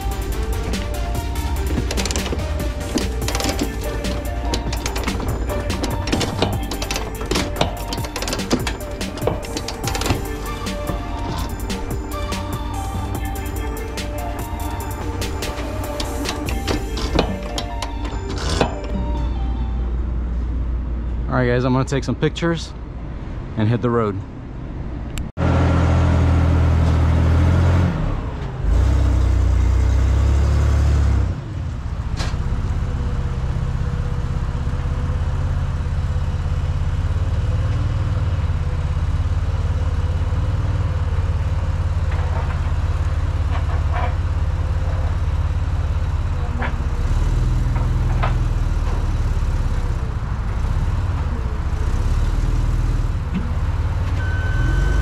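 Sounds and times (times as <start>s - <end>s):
metal clanks: 0.0s - 19.4s, 41.8s - 49.3s
forklift engine running: 0.0s - 21.3s, 24.3s - 55.0s
loud vehicle engine: 0.0s - 22.0s, 22.7s - 55.0s
reversing beep: 54.2s - 55.0s.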